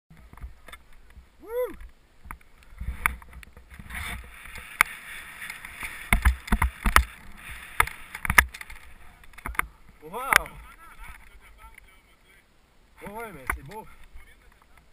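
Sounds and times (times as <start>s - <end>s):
person calling out: 1.4s - 1.8s
skis scraping on snow: 2.7s - 9.3s
sharp knocks and clicks: 6.1s - 7.2s, 7.8s - 9.7s.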